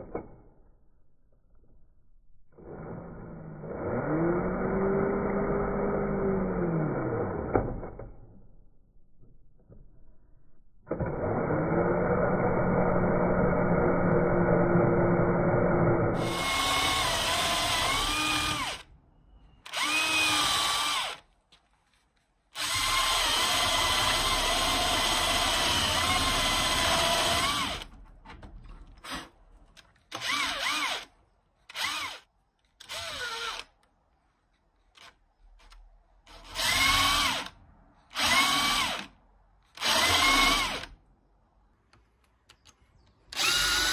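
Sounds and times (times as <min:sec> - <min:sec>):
electric drill whining: 0:10.9 - 0:18.9, 0:19.6 - 0:21.2, 0:22.6 - 0:28.0, 0:30.1 - 0:31.1, 0:31.7 - 0:33.7, 0:39.8 - 0:40.9, 0:43.3 - 0:43.9.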